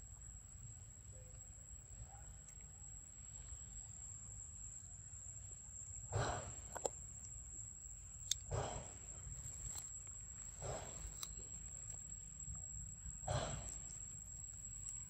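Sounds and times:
crunchy chewing clicks: 0:02.3 - 0:02.8, 0:08.2 - 0:15.0.

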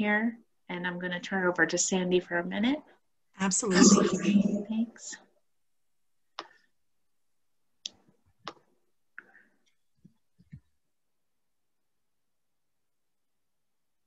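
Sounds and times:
faint mouse clicks: 0:06.4 - 0:06.6.

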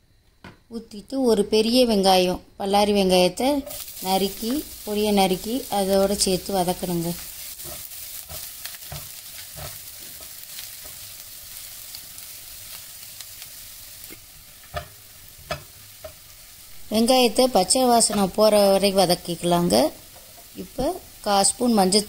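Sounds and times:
onions sizzling in oil: 0:03.1 - 0:22.0
spatula scraping and tapping pan: 0:07.2 - 0:11.1, 0:14.1 - 0:16.3.

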